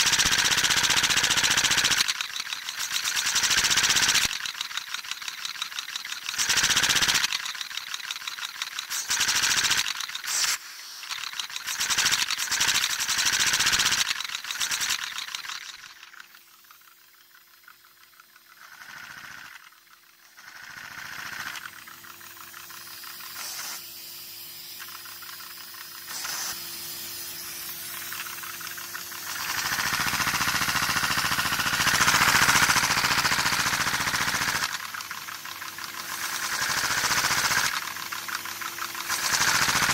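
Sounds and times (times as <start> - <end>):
gas hissing through engine: 8.8 - 14.9, 21.8 - 39.9.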